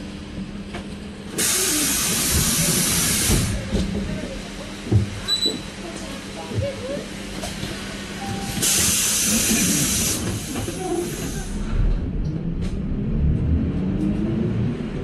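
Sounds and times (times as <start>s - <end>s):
bus engine and tyres rumbling: 0.0s - 15.0s
air brakes hissing: 1.4s - 3.6s, 8.2s - 11.8s.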